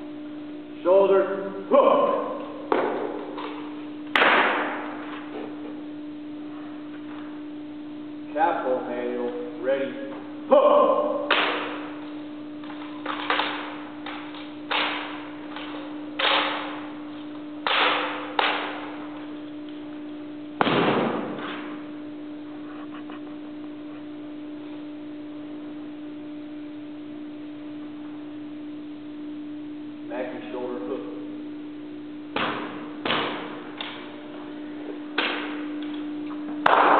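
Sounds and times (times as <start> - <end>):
steady hum: 0.0 - 36.9
rifle butts grounded on floor: 2.7 - 3.5, 4.1 - 5.0, 20.6 - 21.6, 36.6 - 36.9
hands slapping rifles: 12.7 - 16.8.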